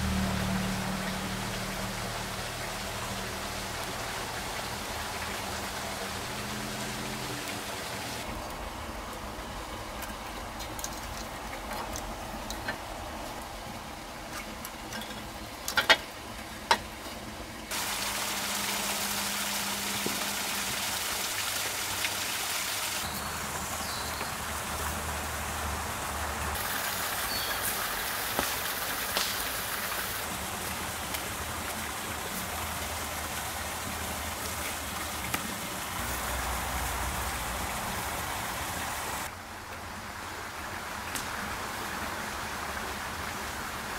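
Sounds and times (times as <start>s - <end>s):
running water rushing: 0.0s - 43.9s.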